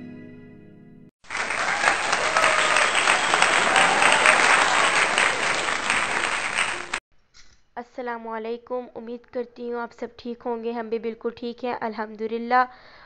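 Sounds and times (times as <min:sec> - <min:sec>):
crowd applause: 0:01.2 - 0:07.0.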